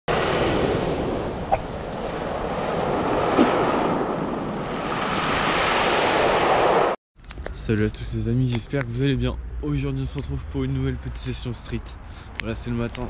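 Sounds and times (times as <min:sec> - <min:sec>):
waves breaking on pebble beach: 0:00.1 - 0:06.9.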